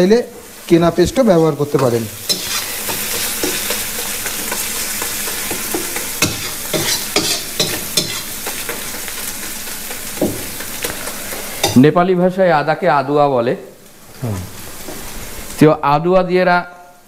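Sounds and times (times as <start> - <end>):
food sizzling in oil: 0.0 - 16.1
metal spatula scraping a pan: 2.2 - 8.7.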